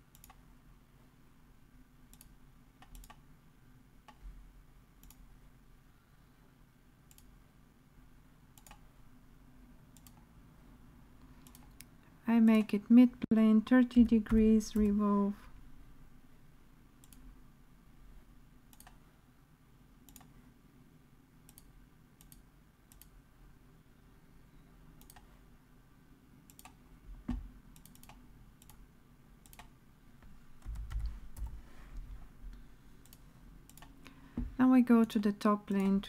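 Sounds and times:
low steady hum: 0.0 - 36.0
computer mouse clicks: 0.1 - 0.4, 2.1 - 3.2, 5.0 - 5.3, 7.1 - 7.4, 8.5 - 8.9, 9.9 - 10.3, 11.2 - 11.9, 17.0 - 17.3, 18.7 - 19.0, 20.0 - 20.4, 21.4 - 23.2, 25.0 - 25.3, 26.5 - 28.8, 29.4 - 29.8, 33.0 - 34.2.

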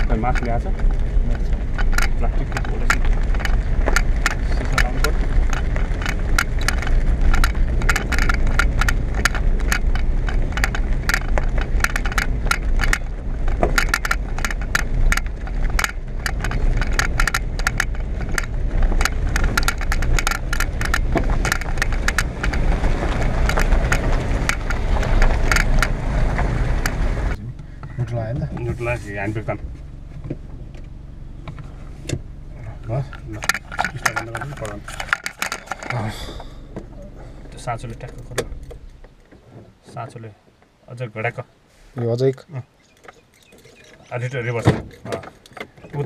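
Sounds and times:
engine and road rumble: 0.0 - 46.0
clicking rattle: 1.6 - 26.0, 32.8 - 36.1.

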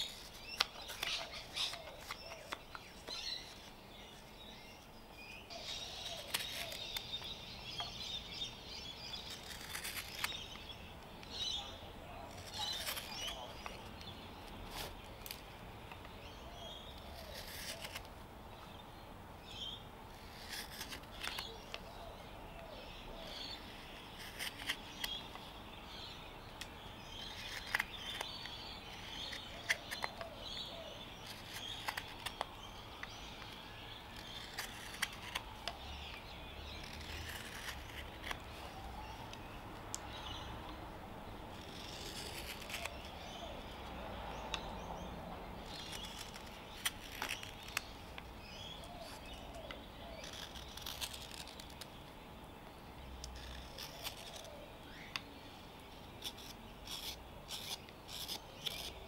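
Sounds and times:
hook knife scraping wood: 0.0 - 4.2, 5.7 - 15.5, 16.6 - 18.1, 20.2 - 21.8, 23.2 - 25.4, 27.0 - 30.6, 31.2 - 38.5, 41.5 - 43.6, 45.6 - 51.9, 53.2 - 55.3, 56.2 - 59.0
birds chirping: 0.0 - 59.0.

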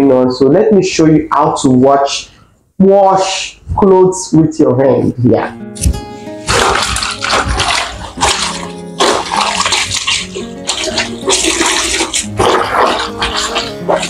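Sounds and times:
background music: 4.9 - 14.0
water sloshing in bucket: 6.4 - 14.0.

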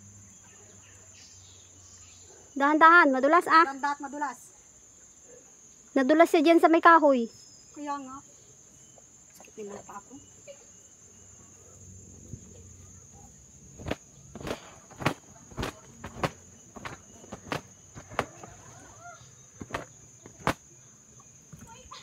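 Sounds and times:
footsteps on rocky ground: 13.8 - 18.7, 19.6 - 20.6.

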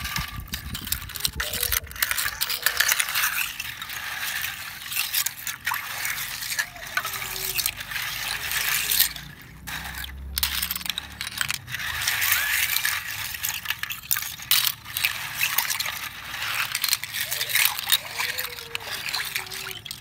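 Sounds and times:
shells clattering against metal: 0.8 - 5.3.

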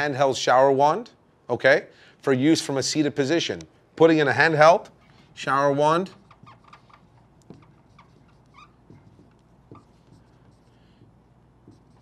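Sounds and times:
marker squeaking on whiteboard: 4.8 - 12.0.

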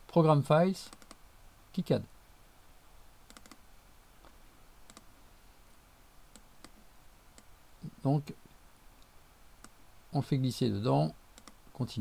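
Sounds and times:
computer mouse clicks: 0.9 - 1.2, 3.3 - 3.6, 4.2 - 5.1, 6.3 - 7.5, 9.0 - 9.8, 11.3 - 11.6.

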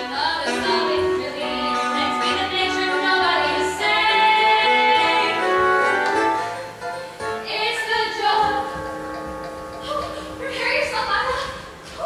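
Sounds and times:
young female voices singing: 0.0 - 5.8, 7.4 - 9.1
backing music: 0.0 - 12.0.

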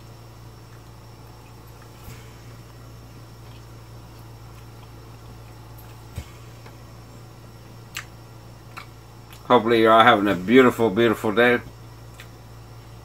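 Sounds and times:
low electrical hum: 0.0 - 13.0
man chewing: 0.6 - 9.5, 12.0 - 12.5.

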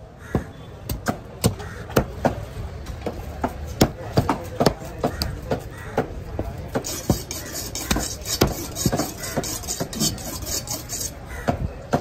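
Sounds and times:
knife scraping fish scales: 6.8 - 11.2.

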